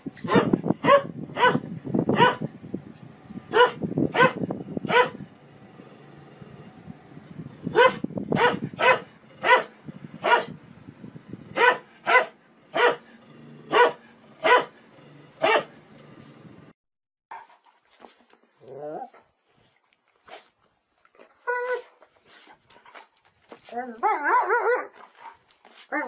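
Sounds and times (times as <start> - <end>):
dog barking: 0.2 - 2.5, 3.5 - 5.2, 7.7 - 10.6, 11.6 - 13.1, 13.7 - 14.8, 15.4 - 15.8, 24.0 - 25.0.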